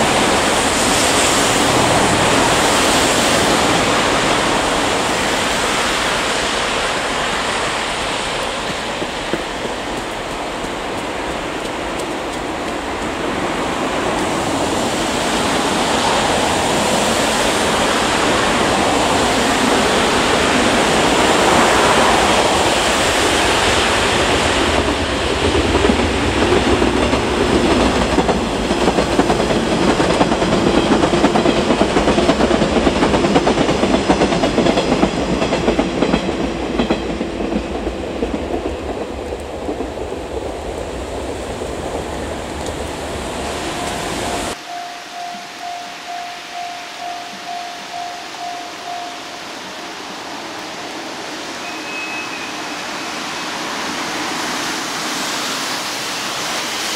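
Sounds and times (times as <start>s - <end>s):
wind and rain on microphone: 0.0s - 56.9s
train wheels clacking over rail joints: 7.3s - 13.3s, 23.3s - 40.4s.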